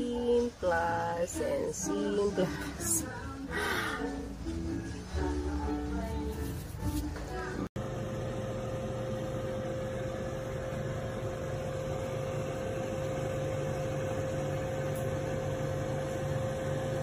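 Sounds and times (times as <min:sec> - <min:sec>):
air fryer fan whirring: 0:06.6 - 0:17.0.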